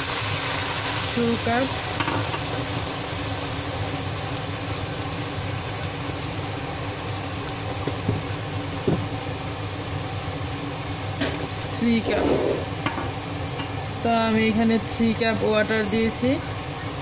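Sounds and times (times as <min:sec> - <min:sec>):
fan humming: 0:00.0 - 0:17.0.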